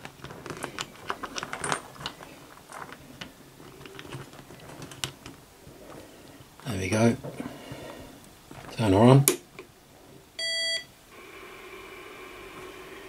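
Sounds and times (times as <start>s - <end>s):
metallic clicks and rattles: 0.0s - 5.4s.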